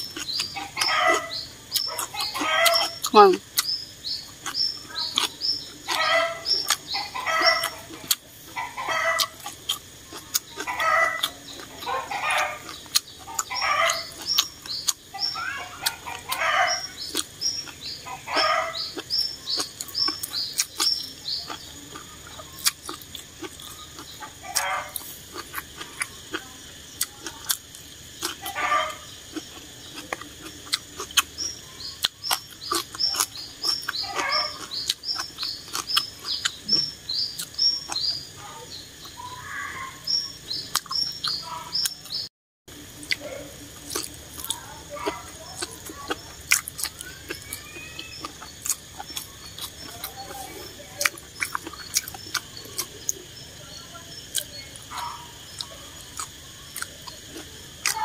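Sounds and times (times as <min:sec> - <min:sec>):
birds clucking: 0:00.0 - 0:58.0
chewing and slurping noodles: 0:09.2 - 0:38.2, 0:43.0 - 0:53.2, 0:55.5 - 0:58.0
high bird chirps: 0:10.6 - 0:22.7, 0:30.7 - 0:42.3, 0:46.2 - 0:57.4.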